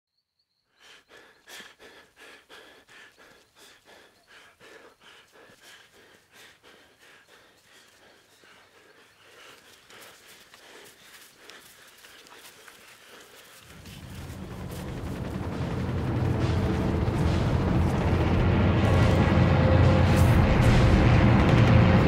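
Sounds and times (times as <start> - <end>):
footsteps on grass: 9.2 - 15.3.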